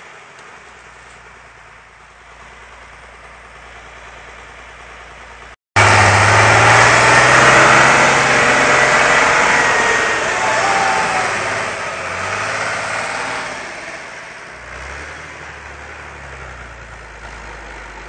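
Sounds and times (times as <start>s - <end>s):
tractor diesel engine drone: 0.0s - 18.0s.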